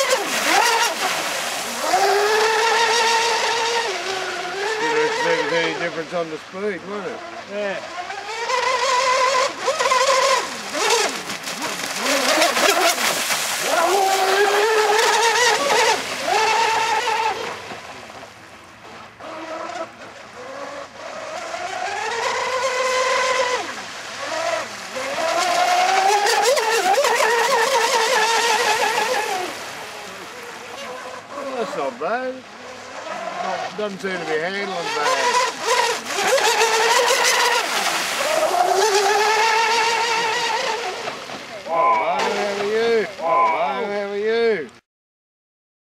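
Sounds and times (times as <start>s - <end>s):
rc boat motor whine: 0.0s - 44.2s.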